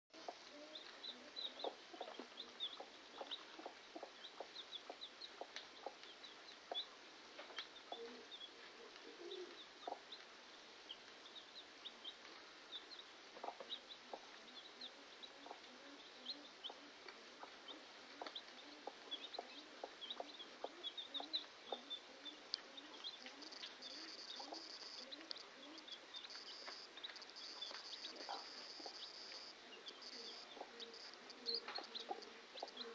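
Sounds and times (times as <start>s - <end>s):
hen clucking: 0.2s - 6.1s, 13.4s - 32.9s
chicks peeping: 0.2s - 6.9s, 9.2s - 10.3s, 10.9s - 32.9s.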